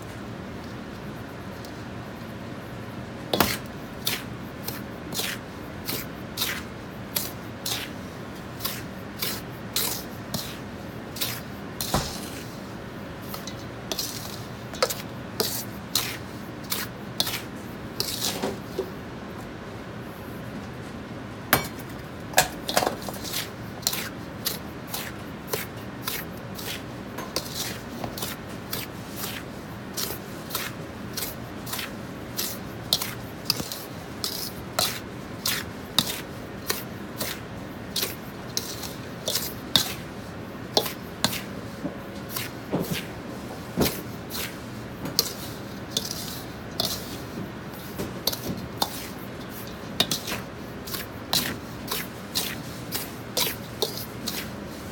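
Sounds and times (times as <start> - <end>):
metal ladle scraping steel bowl: 13.3 - 17.4, 45.2 - 47.1.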